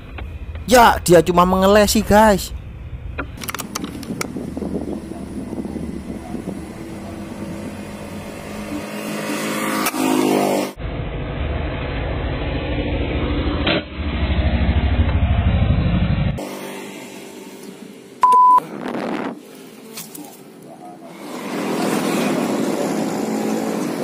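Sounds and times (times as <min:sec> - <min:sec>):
louder engine pulsing: 0:00.0 - 0:19.4
traffic engines rumbling: 0:00.0 - 0:24.0.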